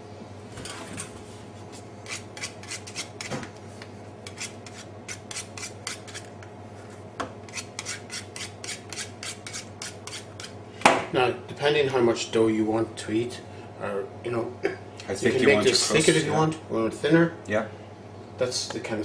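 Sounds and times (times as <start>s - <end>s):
knife scraping steel surface: 2.0s - 3.4s, 4.2s - 6.3s, 7.5s - 10.6s.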